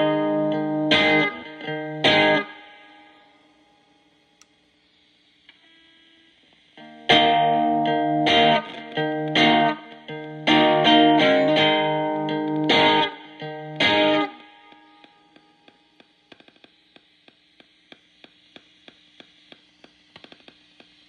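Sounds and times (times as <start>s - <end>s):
distorted electric guitar strums: 0.0s - 3.3s, 6.6s - 18.8s.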